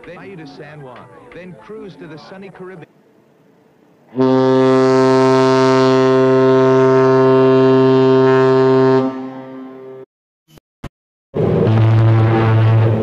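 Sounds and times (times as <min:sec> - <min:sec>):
deep ship horn blast: 0:04.1 - 0:10.1, 0:11.4 - 0:13.0.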